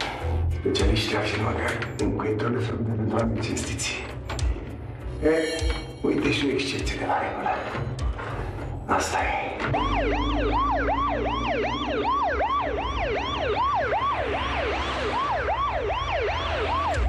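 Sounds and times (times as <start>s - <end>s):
siren in fast yelp mode: 9.7s - 17.0s.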